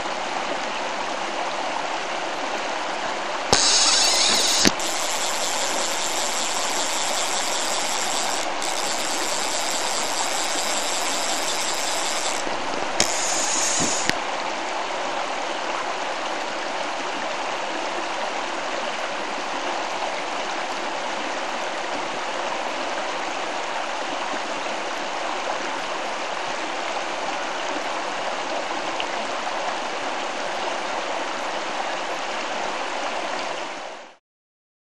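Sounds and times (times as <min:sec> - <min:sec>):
stream water rushing: 0:00.0 - 0:33.9
bright high hiss: 0:03.5 - 0:14.2
short clicks: 0:03.5 - 0:14.2.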